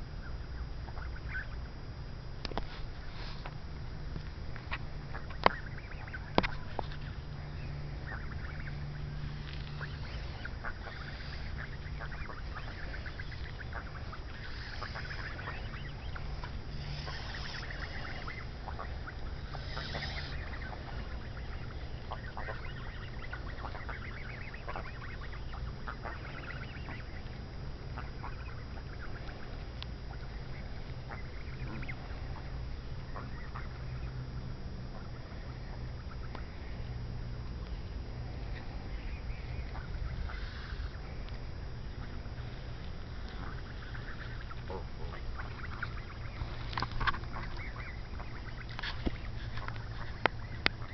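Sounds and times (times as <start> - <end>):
geese honking and clucking: 0.0 - 50.9.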